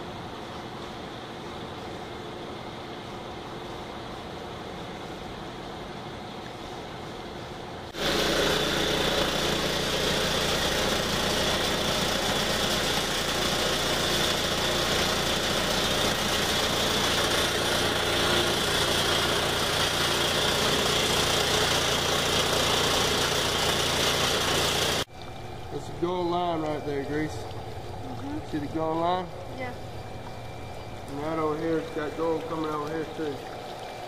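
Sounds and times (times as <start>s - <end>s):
grinding mill running: 7.9s - 34.0s.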